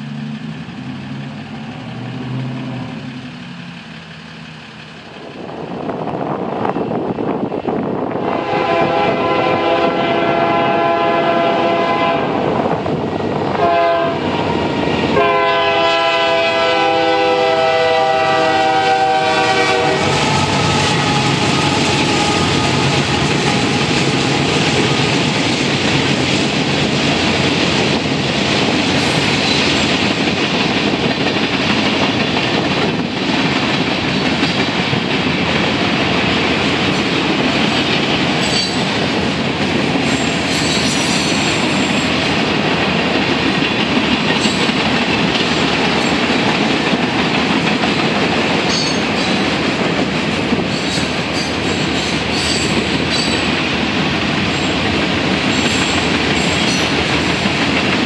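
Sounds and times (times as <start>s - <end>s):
train cars rolling past: 0.0s - 58.0s
locomotive air horn blasts: 8.2s - 12.5s, 13.6s - 14.4s, 15.1s - 25.1s.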